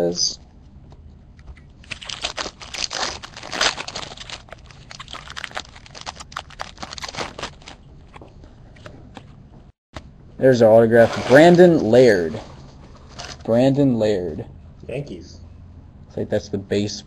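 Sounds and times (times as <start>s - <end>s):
foil wrapper crinkling: 1.8s - 8.2s.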